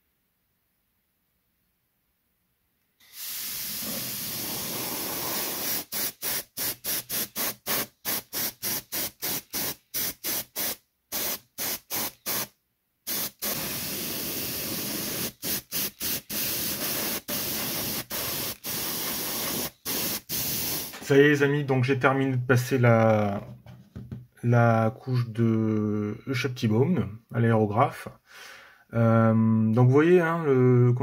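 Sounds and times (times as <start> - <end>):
airbrush air hiss: 3.0 - 21.1.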